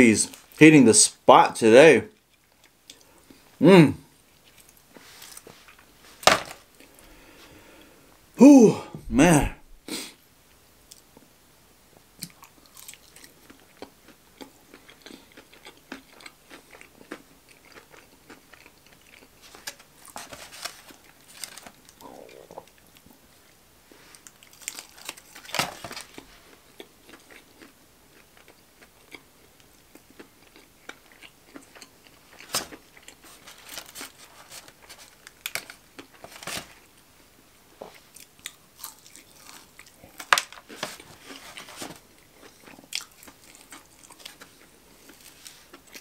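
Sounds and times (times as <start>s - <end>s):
chewing crispy fried chicken: 2.1s - 3.5s, 4.1s - 6.0s, 12.2s - 36.9s, 37.9s - 46.0s.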